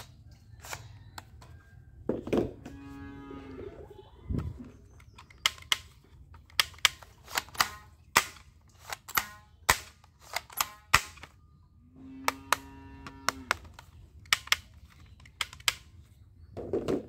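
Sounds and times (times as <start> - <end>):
toy gun mechanism clicking: 5.0 - 11.4, 13.5 - 15.9.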